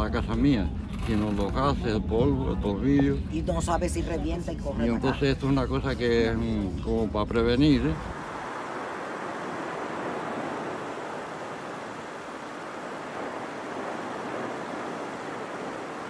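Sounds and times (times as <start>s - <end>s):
volcano vent rushing: 8.0s - 16.0s.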